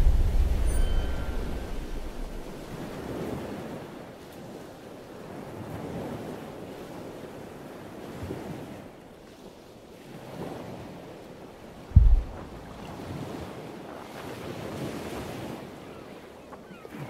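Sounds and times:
wind buffeting microphone: 0.0 - 3.9, 11.9 - 15.6
loud low thump: 12.0 - 12.9.

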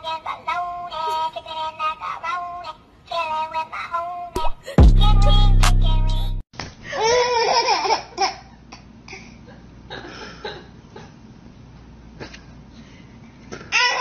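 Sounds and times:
baby laughing: 6.9 - 8.8.

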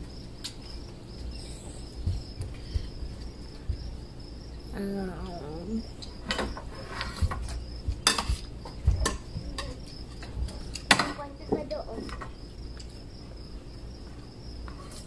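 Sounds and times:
crickets chirping: 0.0 - 15.0
cutlery and plates clinking: 6.2 - 8.4.

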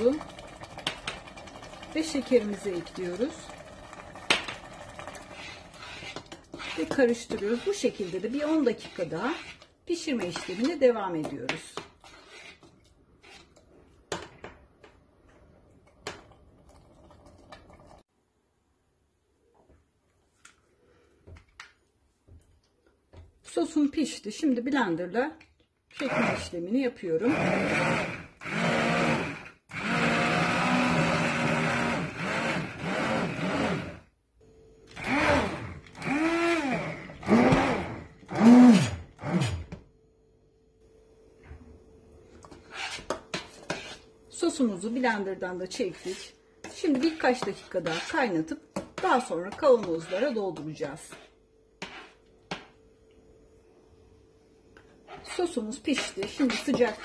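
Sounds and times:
spoon scraping a metal pot: 5.2 - 13.7, 42.5 - 44.1, 45.9 - 48.4, 51.0 - 52.2, 55.9 - 57.0
stick blender motor whining: 27.2 - 34.1, 34.9 - 39.7.

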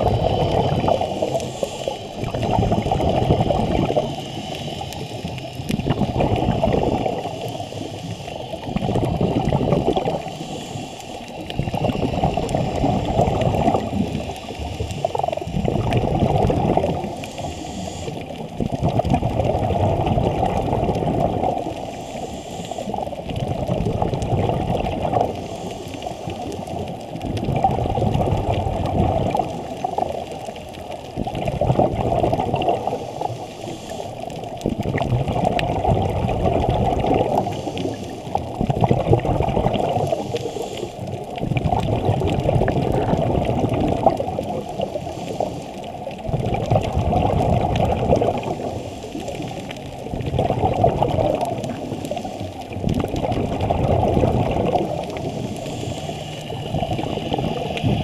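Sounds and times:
diver breathing through regulator: 0.0 - 18.8, 21.0 - 23.7, 25.0 - 26.8, 32.5 - 35.7, 36.8 - 38.7, 39.8 - 41.2, 44.6 - 46.2, 48.4 - 50.0, 51.6 - 52.7, 54.4 - 58.0
underwater bubbling: 0.0 - 58.0.

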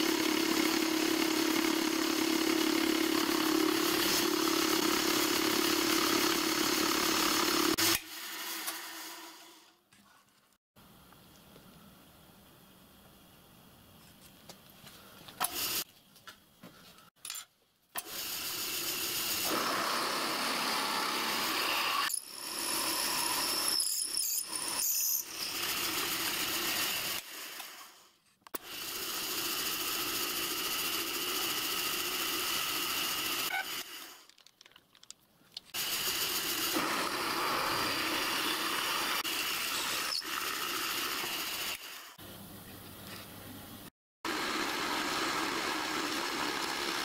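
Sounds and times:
drill grinding through metal: 0.0 - 9.7, 18.0 - 28.0, 28.6 - 34.3, 35.7 - 42.2, 44.3 - 47.0
high squeal from drill bit: 20.6 - 27.2, 32.5 - 33.9, 36.7 - 41.8.

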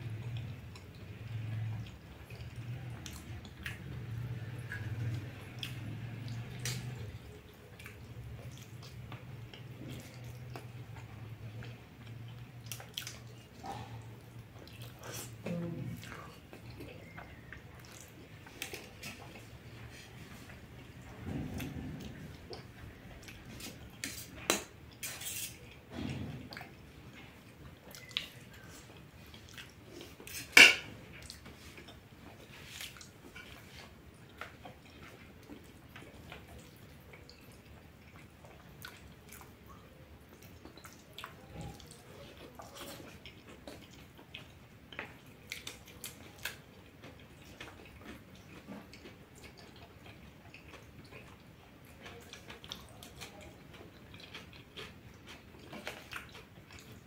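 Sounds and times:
chewing and lip smacks: 0.1 - 57.0.

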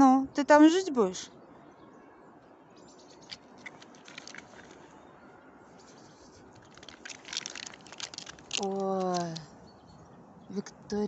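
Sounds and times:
dog paws scratching bark and snow: 5.7 - 9.5.

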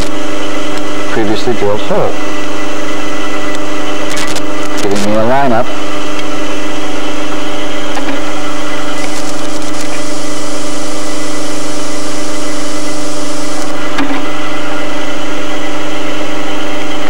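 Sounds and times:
drill bit cutting metal: 0.0 - 2.5, 3.4 - 15.7
drill press motor humming: 0.0 - 17.0
single click: 3.5 - 4.9.

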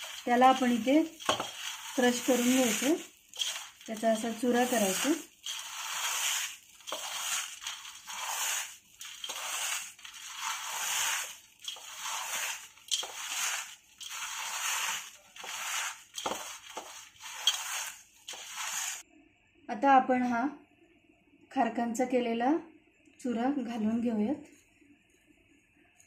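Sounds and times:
crisp crunching: 0.0 - 19.0.

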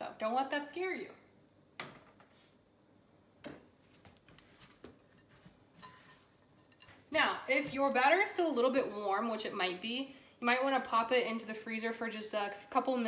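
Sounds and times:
spatula scraping bowl: 5.0 - 7.1.

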